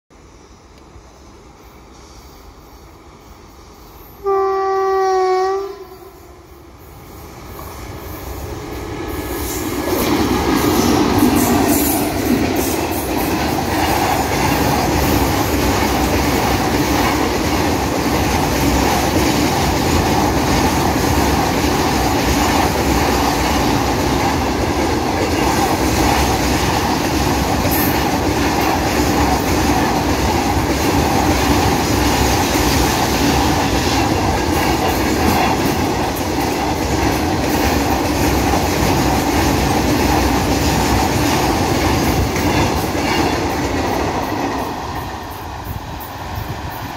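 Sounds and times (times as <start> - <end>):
freight train rumbling past: 0.1 - 46.9
locomotive horn: 4.2 - 6.5.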